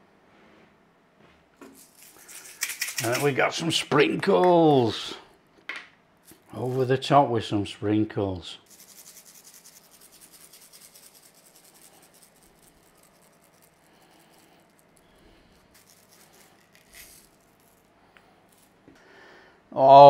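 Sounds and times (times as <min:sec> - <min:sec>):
sugar sprinkles scattering: 0:01.8 - 0:03.6, 0:08.7 - 0:17.9.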